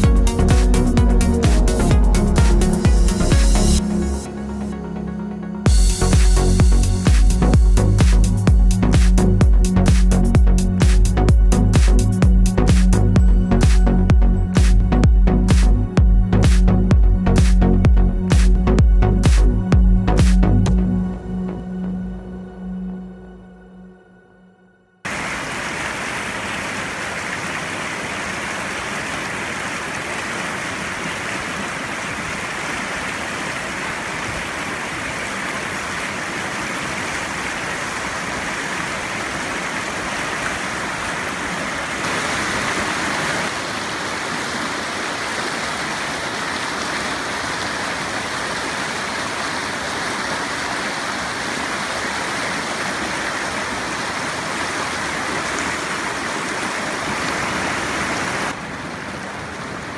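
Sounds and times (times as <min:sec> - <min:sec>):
stream rushing over stones: 0:25.1 - 0:59.9.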